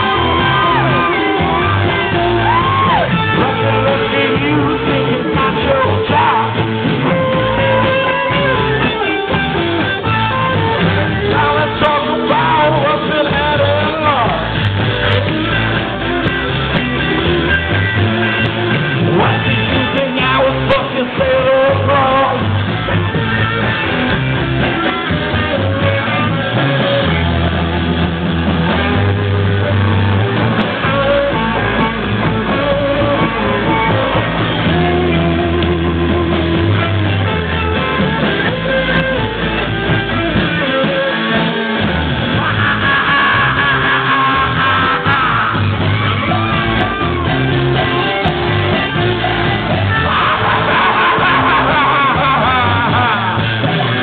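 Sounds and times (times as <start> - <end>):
person singing: 0.0 - 27.8, 29.6 - 54.0
bass line: 0.0 - 54.0
electric guitars: 0.0 - 54.0.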